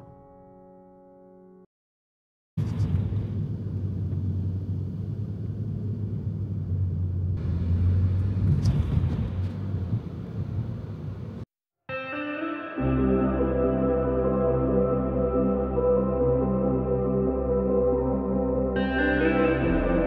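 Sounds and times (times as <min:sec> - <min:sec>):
car road and engine rumble: 0:02.6 - 0:11.5.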